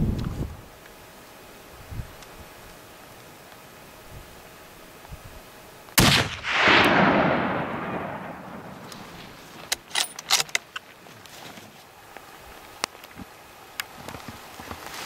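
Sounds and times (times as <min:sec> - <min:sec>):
rifle shot echoing: 0:06.0 - 0:09.4.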